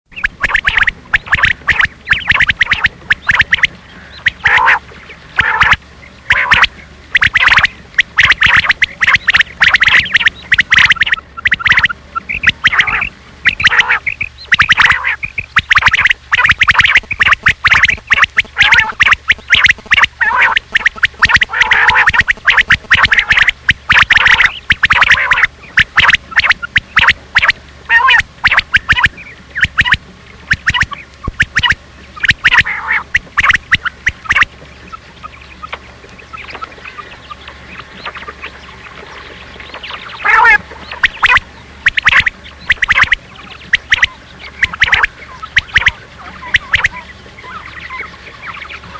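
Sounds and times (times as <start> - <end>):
quail calling: 0.1 - 48.9.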